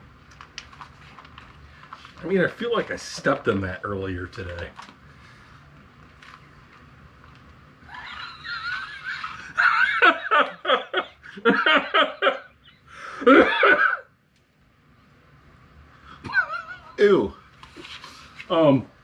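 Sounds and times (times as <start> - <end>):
men laughing: 7.9 - 14.1, 16.2 - 17.3.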